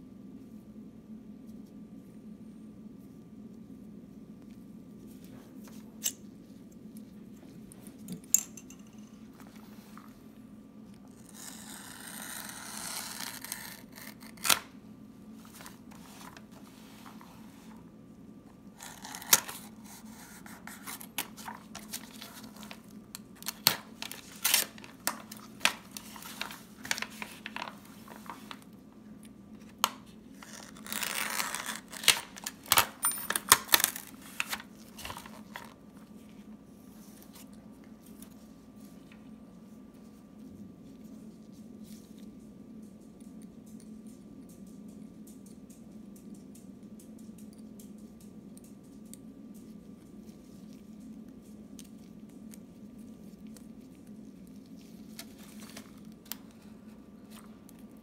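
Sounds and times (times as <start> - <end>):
envelope tearing: 11.1 - 14.7, 18.8 - 28.6, 30.3 - 35.8
envelope slit with knife: 11.2 - 14.6
envelope rustling and crackling: 15.4 - 17.8, 18.7 - 28.8, 29.5 - 42.4, 50.2 - 58.0.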